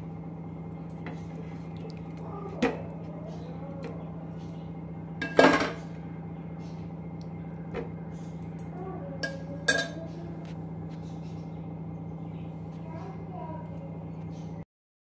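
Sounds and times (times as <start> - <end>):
steady low hum: 0.0 - 14.7
metal spoon clinking on steel plate: 9.2 - 10.0.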